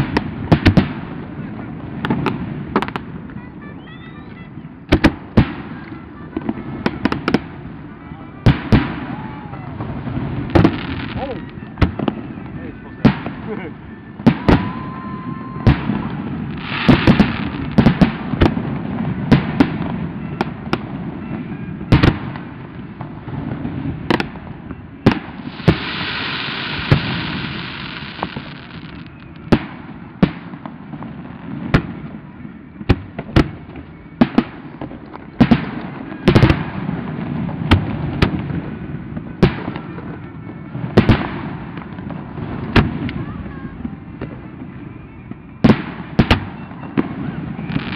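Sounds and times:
fireworks bangs: 0.0 - 47.9
steady hiss: 25.2 - 29.9.

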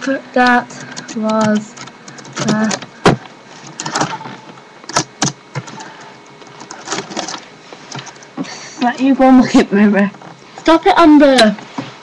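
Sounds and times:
sharp knocks and clicks: 0.4 - 8.2
rustling and bumping: 0.8 - 8.6.

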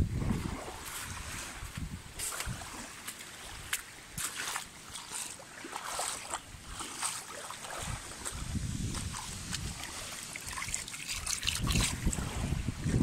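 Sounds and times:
wind buffeting microphone: 0.0 - 2.9, 7.6 - 13.0
small waves lapping and splashing: 0.0 - 13.0.

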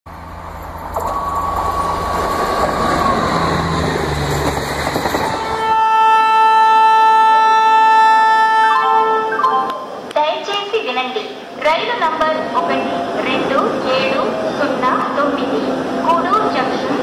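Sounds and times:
train wheels rumbling: 0.1 - 6.4
train horn long note: 5.4 - 10.0
electronic chime note: 8.8 - 10.0.

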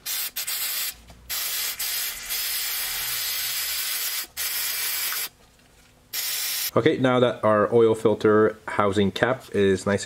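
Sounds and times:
aerosol can spraying: 0.0 - 5.3, 6.1 - 6.7.

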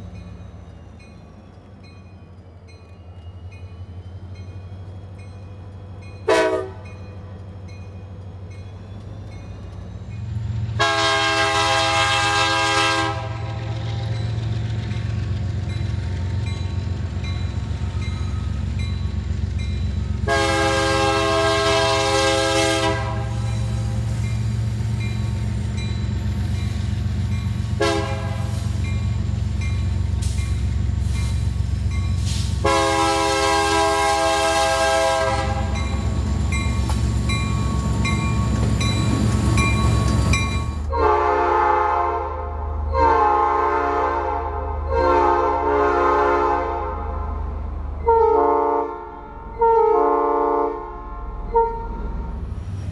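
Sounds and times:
locomotive air horn: 6.3 - 6.9, 10.8 - 13.9, 20.2 - 24.1, 27.7 - 28.8, 32.3 - 36.0, 40.9 - 47.2, 48.0 - 52.1
short locomotive horn toots: 6.3 - 6.9, 10.8 - 13.9, 20.2 - 24.0, 27.8 - 28.8, 32.3 - 36.0, 40.9 - 42.4.

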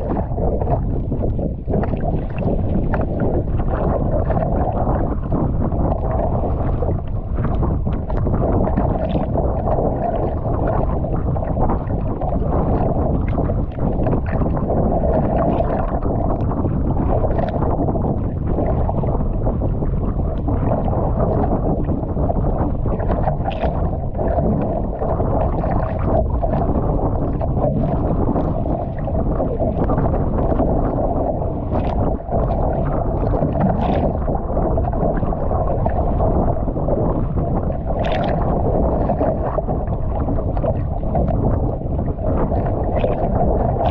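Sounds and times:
water slapping kayak hull: 0.0 - 43.9
wind buffeting microphone: 0.0 - 43.9
paddle splashes: 38.0 - 38.4.

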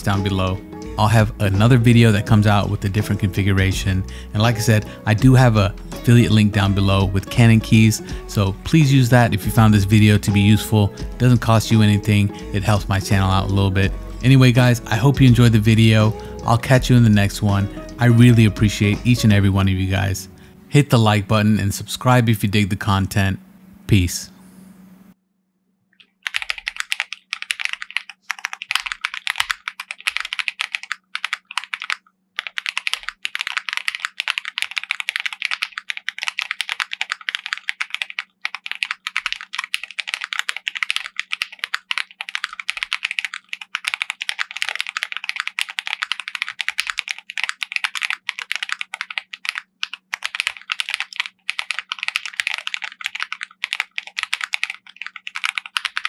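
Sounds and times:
typing on mechanical keyboard: 26.0 - 56.0.

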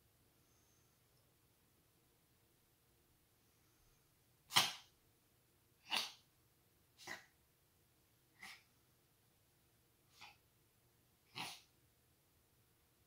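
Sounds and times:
cat sneezing: 4.5 - 5.0, 5.8 - 6.3, 7.0 - 7.3, 8.4 - 8.7, 11.3 - 11.7.

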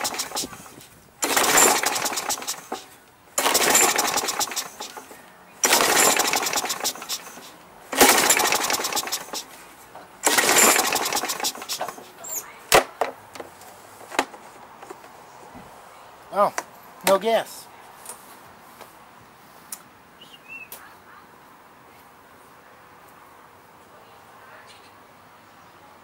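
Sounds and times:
sharp clacks: 0.0 - 9.6, 10.2 - 12.9
mower engine pull-started: 0.0 - 12.4.

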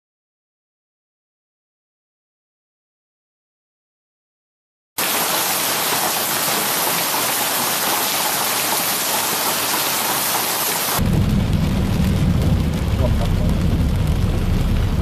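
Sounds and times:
heavy rain splashing on pavement: 5.0 - 15.0
car driving on wet road rumble: 5.3 - 15.0.

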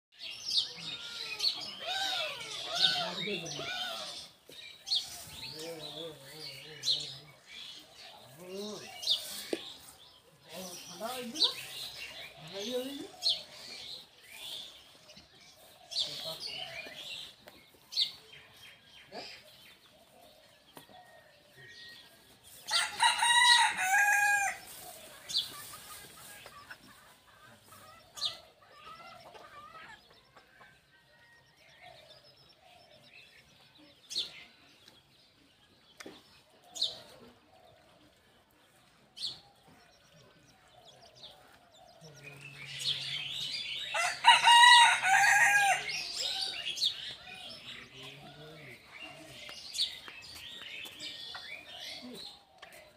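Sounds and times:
rooster crowing: 22.7 - 24.6, 43.9 - 46.6.

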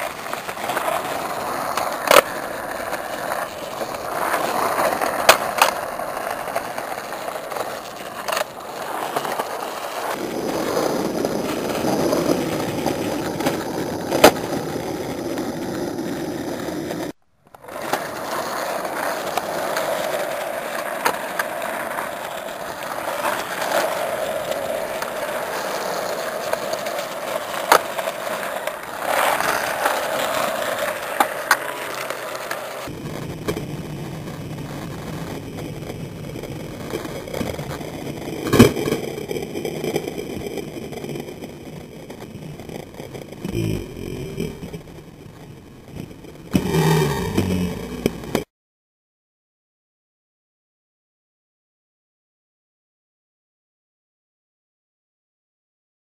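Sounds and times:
skateboard clacking on ground: 0.0 - 43.5, 44.6 - 48.5
skateboard wheels rolling on concrete: 0.0 - 48.5.

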